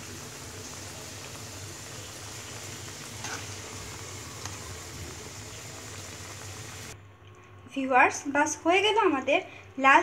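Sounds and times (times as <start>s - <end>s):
curry bubbling: 0.0s - 7.0s.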